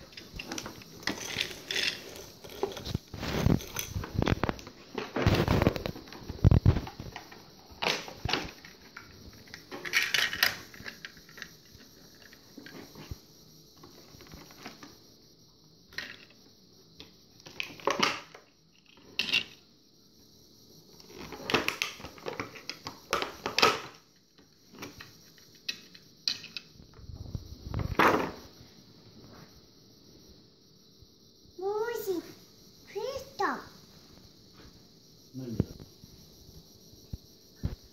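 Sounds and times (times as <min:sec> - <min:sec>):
plastic toys clattering on table: 0:00.1 - 0:05.9, 0:06.7 - 0:13.0, 0:17.4 - 0:18.4, 0:19.0 - 0:19.6, 0:21.1 - 0:24.0, 0:24.7 - 0:26.7.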